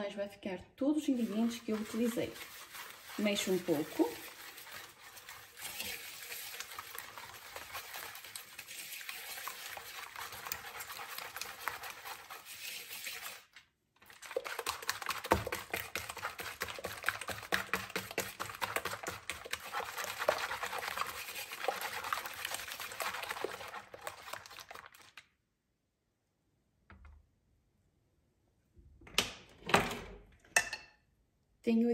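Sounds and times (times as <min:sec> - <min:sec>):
whisk beating in a bowl: 0:01.1 - 0:25.2.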